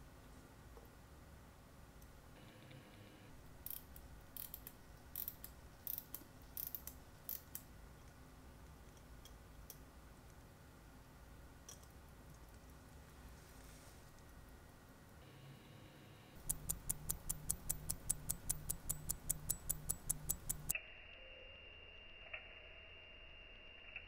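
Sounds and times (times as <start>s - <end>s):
tweezers clicking on metal parts: 16.4s - 20.8s.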